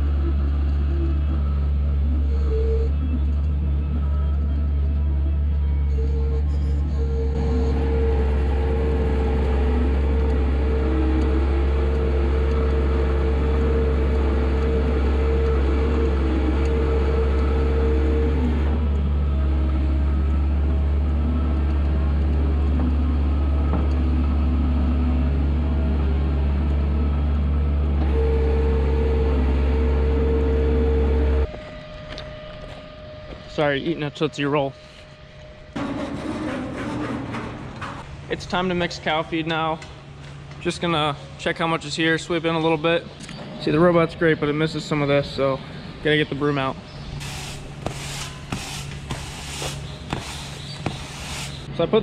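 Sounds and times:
steady machine whine: 0.0 - 43.2
machine drone with deep rumble: 0.0 - 51.8.

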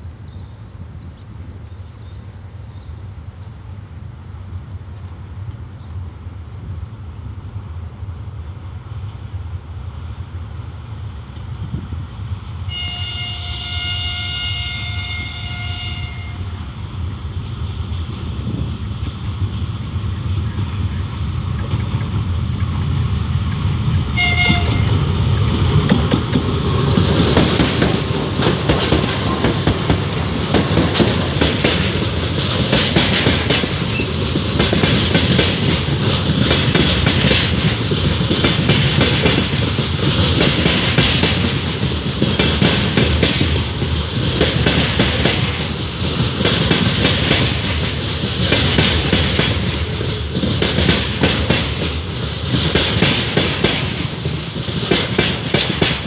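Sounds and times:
diesel locomotive passing: 0.0 - 56.0
train horn blast: 12.7 - 16.6, 24.2 - 25.1.

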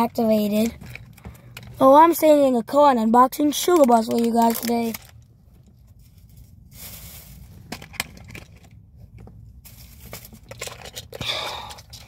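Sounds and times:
plastic packaging crinkling: 3.6 - 8.8.

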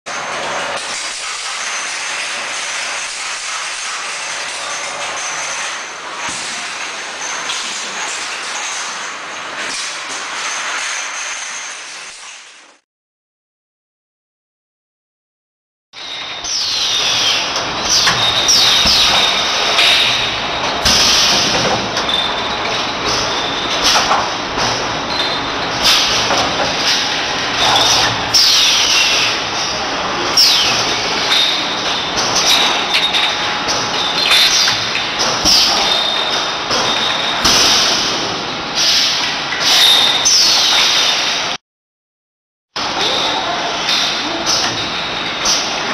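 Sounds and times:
filling machine clattering: 0.1 - 12.3
machine squeals: 16.0 - 41.5.

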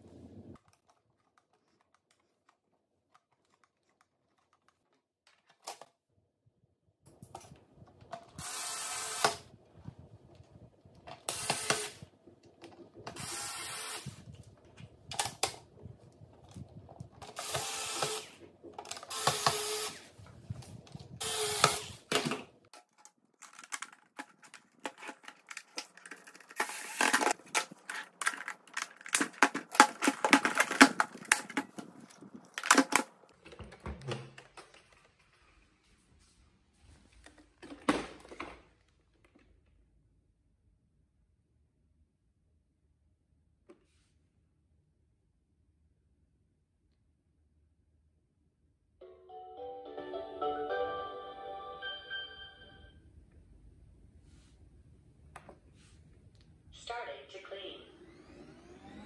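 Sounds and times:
cordless screwdriver running: 13.2 - 14.2, 17.3 - 18.3, 19.0 - 20.1, 21.2 - 22.0
plastic clicks and rattles: 20.8 - 35.3.

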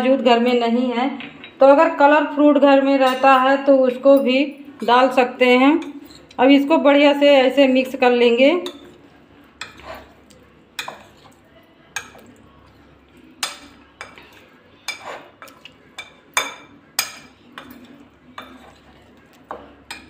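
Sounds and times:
spoon clinking against a bowl: 3.0 - 4.4, 8.6 - 9.0, 9.6 - 10.1, 10.8 - 11.4, 12.0 - 12.3, 13.4 - 20.0.

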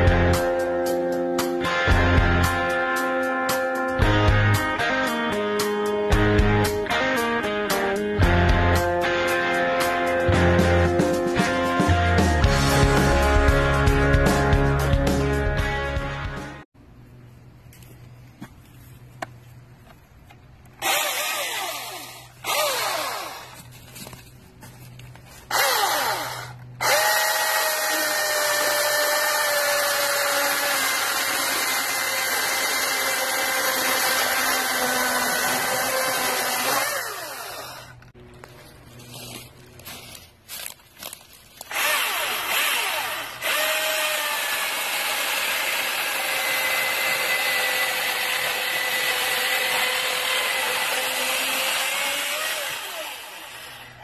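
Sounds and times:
chainsaw cutting through log: 20.8 - 23.7, 25.5 - 38.0, 41.0 - 54.0.

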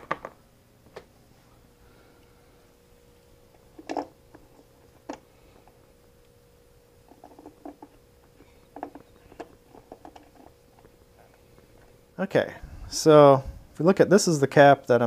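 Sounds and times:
small clicks and rattles: 7.1 - 10.9.

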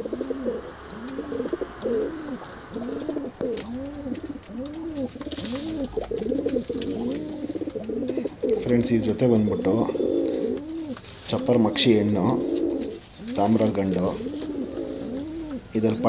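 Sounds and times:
pigeons cooing: 0.0 - 16.0.

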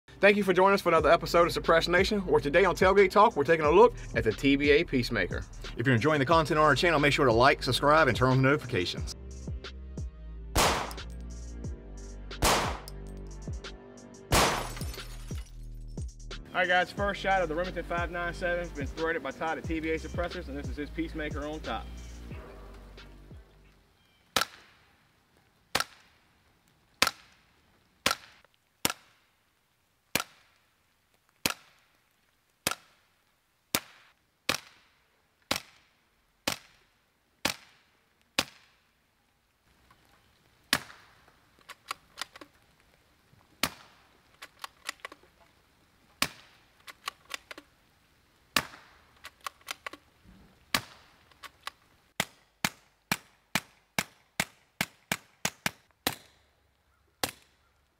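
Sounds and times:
suppressed rifle shots: 10.6 - 11.0, 12.4 - 12.9, 14.3 - 14.8.

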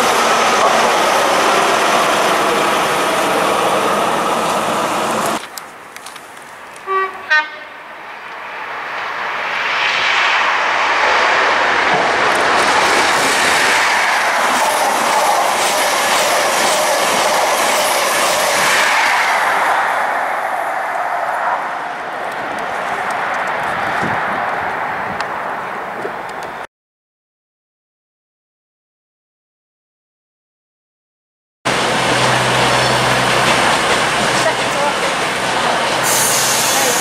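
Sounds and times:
train wheels rushing on rails: 0.0 - 5.6, 8.0 - 25.3, 31.7 - 37.0
diesel train passing: 0.0 - 26.6, 31.7 - 37.0
train horn blasts: 6.8 - 7.9.

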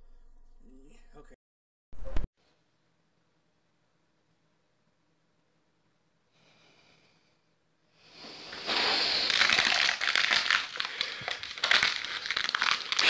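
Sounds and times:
plastic bottle crinkling: 8.5 - 13.0.

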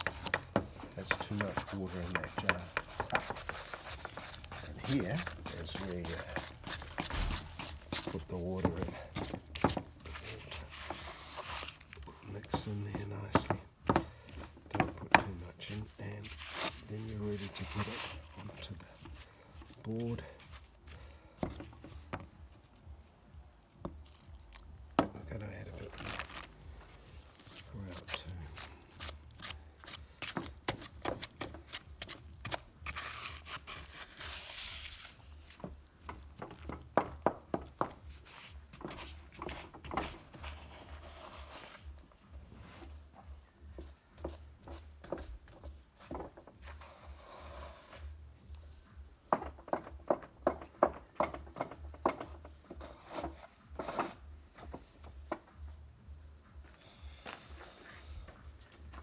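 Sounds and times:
stick scraping wet grout: 0.0 - 21.4.

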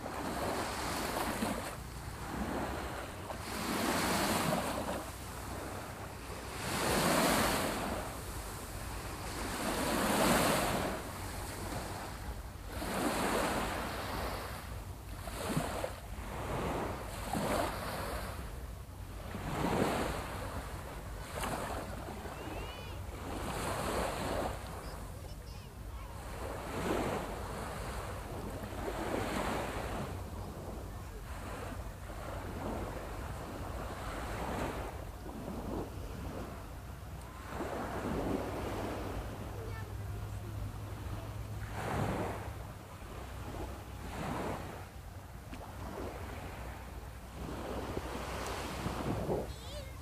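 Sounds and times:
sea waves breaking on shore: 0.0 - 50.0
wind rumble on microphone: 40.4 - 50.0.

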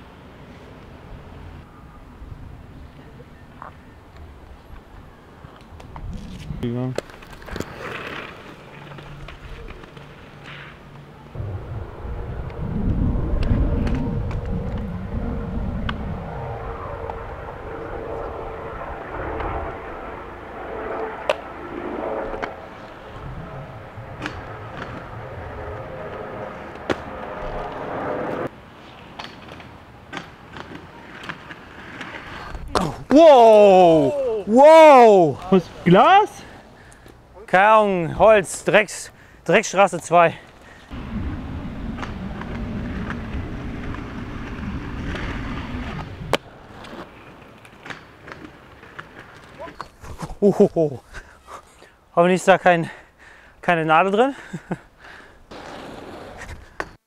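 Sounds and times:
skate wheels rolling on pavement: 2.2 - 11.4, 12.2 - 17.6, 22.2 - 53.0, 54.0 - 57.0
wind buffeting microphone: 5.7 - 6.7, 11.3 - 28.5, 40.9 - 46.6
low hum: 11.1 - 28.5, 40.9 - 46.7.

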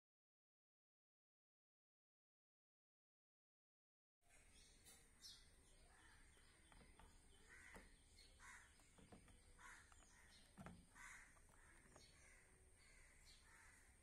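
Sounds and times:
faint bird calls: 4.3 - 14.0.

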